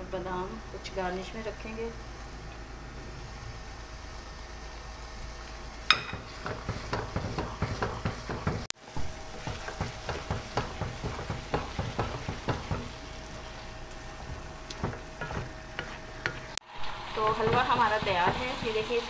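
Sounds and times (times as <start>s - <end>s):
light sizzle: 0.0s - 19.0s
wooden spoon scraping a pan: 9.3s - 16.6s.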